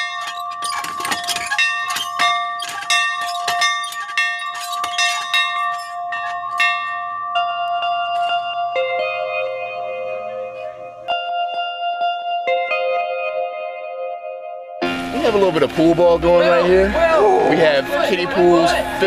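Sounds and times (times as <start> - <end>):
bell clanging: 0.0 - 13.0.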